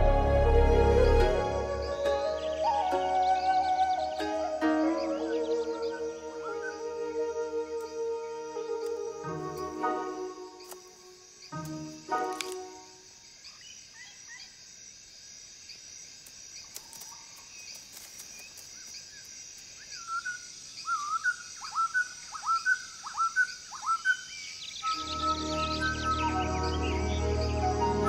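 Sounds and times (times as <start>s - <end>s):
music: 0.0s - 11.0s, 11.6s - 13.0s, 24.9s - 28.0s
steady hiss: 1.3s - 28.0s
faint bird chirps: 16.6s - 28.0s.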